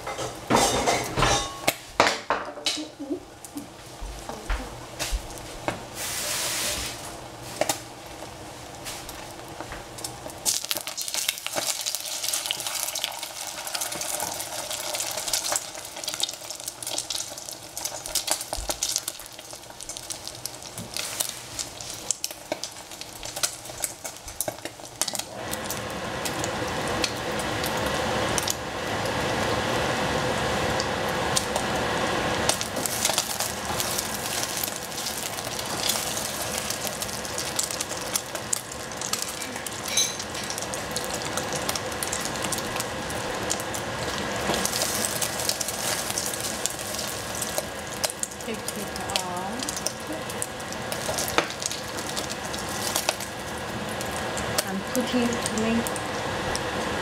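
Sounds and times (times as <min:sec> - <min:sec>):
eggs sizzling in oil: 0:00.0 - 0:57.0
wooden spatula scraping pan: 0:06.0 - 0:07.1.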